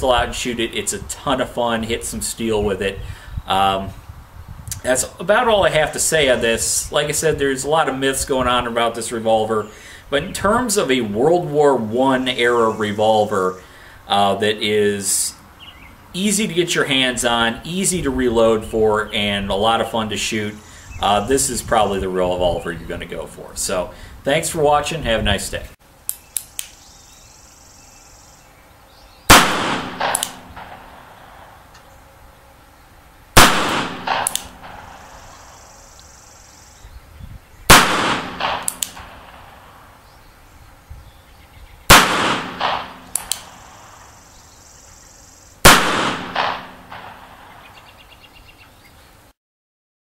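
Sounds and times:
revolver shots: 29.3s - 31.5s, 33.4s - 35.4s, 37.7s - 39.7s, 41.9s - 44.0s, 45.7s - 47.7s
weaker crack or clang: 29.4s - 30.9s, 37.8s - 39.2s.

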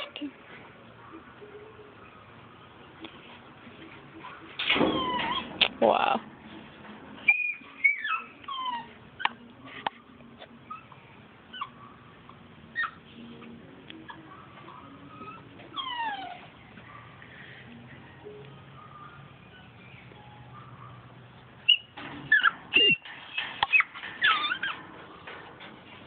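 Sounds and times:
puppy whining and yelping: 4.1s - 5.6s, 7.2s - 9.8s, 10.5s - 13.1s, 14.0s - 17.6s, 18.8s - 25.2s.

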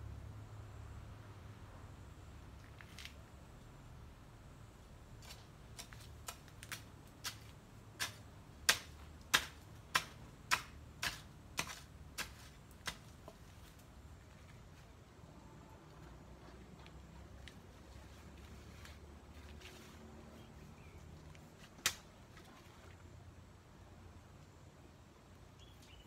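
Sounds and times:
hoe chopping hard soil: 5.2s - 13.7s.

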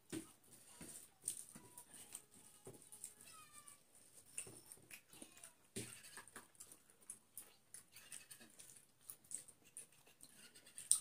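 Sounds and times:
wet chewing clicks: 4.0s - 11.0s.

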